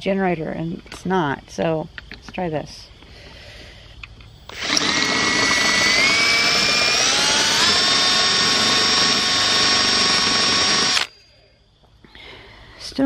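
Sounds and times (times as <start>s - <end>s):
power drill motor whine: 4.3s - 11.3s.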